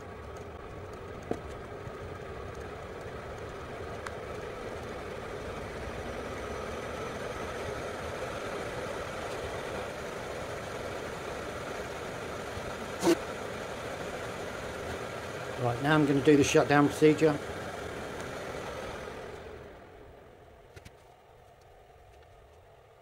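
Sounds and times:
air heater fan and burner: 0.0s - 23.0s.

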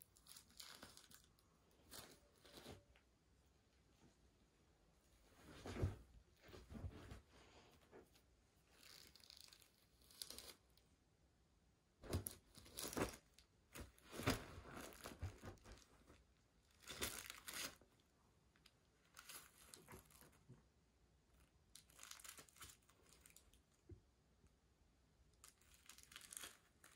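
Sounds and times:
bed sheets rustling: 5.1s - 8.3s, 13.8s - 16.2s.

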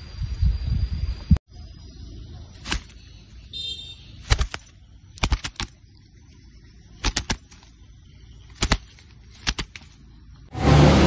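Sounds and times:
bird wings flapping: 2.6s - 3.0s, 4.2s - 5.8s, 7.0s - 7.8s, 8.5s - 10.0s
wings striking sticks: 2.6s - 3.0s, 4.2s - 5.8s, 7.0s - 7.7s, 8.5s - 10.0s.

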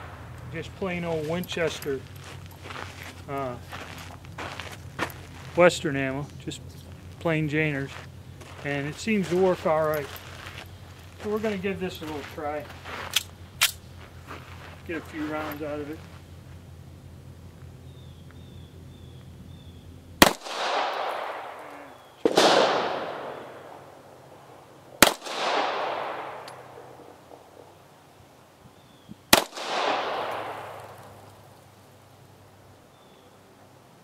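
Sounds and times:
pistol shots with echo: 20.2s - 24.2s, 25.0s - 27.6s, 29.3s - 31.3s.

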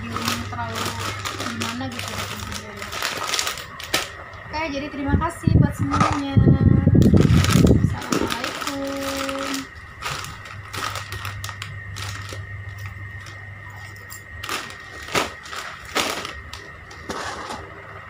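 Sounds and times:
plastic packets crinkling: 0.0s - 4.2s, 7.0s - 17.1s
steady low hum: 0.0s - 18.0s.

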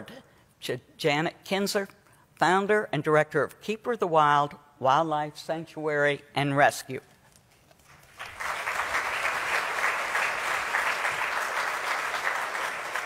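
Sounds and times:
audience applauding: 7.9s - 13.0s.

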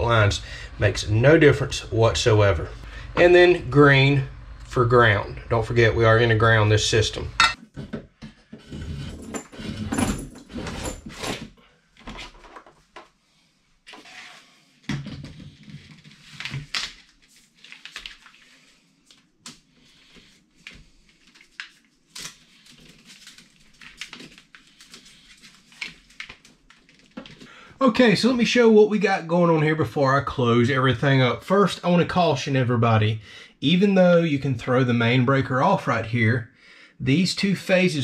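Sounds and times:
cable rustling and scraping: 8.4s - 13.0s.

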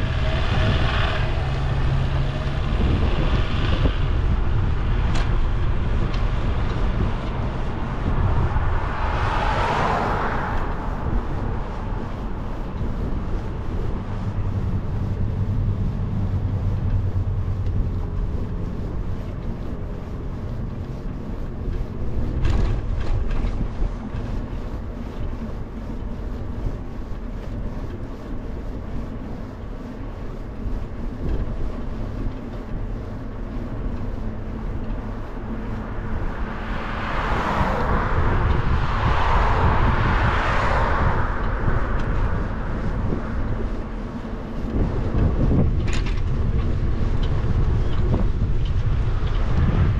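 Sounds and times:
wind on microphone: 0.0s - 29.4s, 30.0s - 49.9s
road rumble: 0.0s - 49.9s
car passing close by: 7.3s - 12.0s, 35.8s - 43.5s.

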